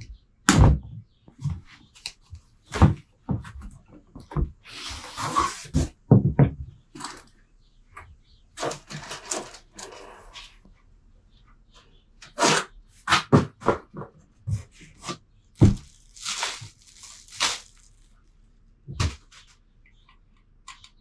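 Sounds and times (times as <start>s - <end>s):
knocks and thuds: 6.1s - 6.8s, 15.6s - 16.0s.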